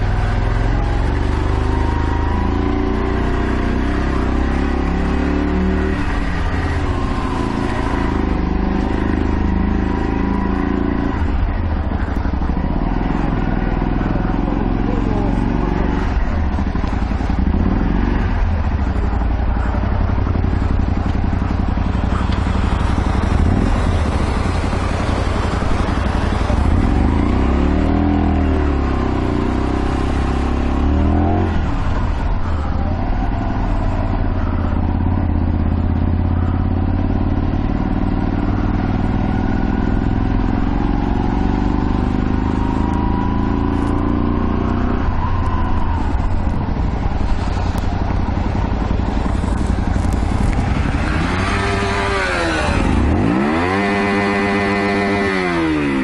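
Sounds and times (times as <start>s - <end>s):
motorcycle engine revving: 0.0s - 56.0s
steady rushing noise: 3.7s - 27.7s, 44.6s - 56.0s.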